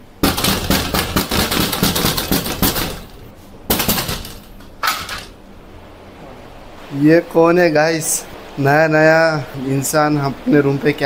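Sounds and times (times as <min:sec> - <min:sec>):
rapid rattling knocks: 0:00.2 - 0:05.4.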